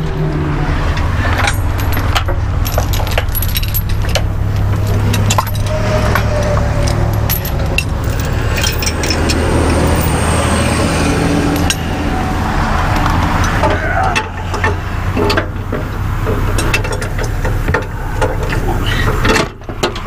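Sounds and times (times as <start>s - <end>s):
low engine hum: 0.0s - 20.0s
steel chain clinking and rattling: 1.2s - 10.8s, 11.4s - 12.0s.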